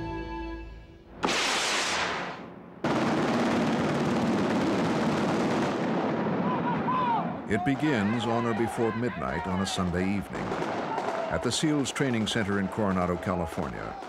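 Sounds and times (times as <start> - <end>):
explosion-like blast: 1.1 - 7.4.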